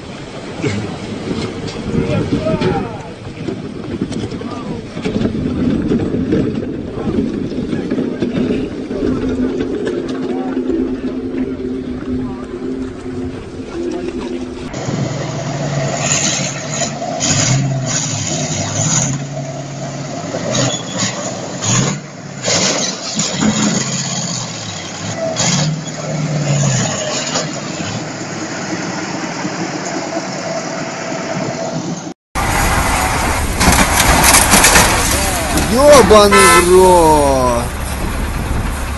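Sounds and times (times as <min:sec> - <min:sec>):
diesel truck engine revving: 0:08.9 - 0:30.2, 0:32.4 - 0:38.9
rattling and scraping: 0:32.5 - 0:36.6.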